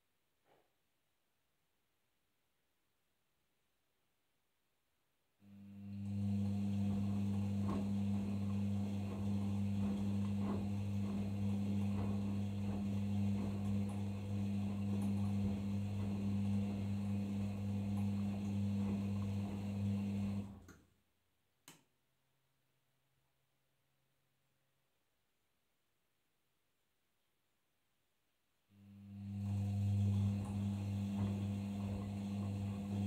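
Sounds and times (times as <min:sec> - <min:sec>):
mains hum: 0:00.1 - 0:21.1, 0:28.0 - 0:33.0
water rushing into washing machine: 0:05.6 - 0:20.7, 0:28.8 - 0:33.0
click: 0:20.6 - 0:20.9, 0:21.6 - 0:21.9.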